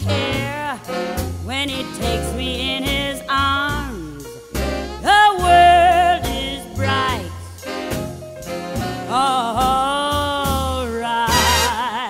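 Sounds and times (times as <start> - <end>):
woman singing a ballad: 0.0 - 4.4, 5.0 - 7.8, 8.9 - 12.0
swing band playing: 0.0 - 12.0.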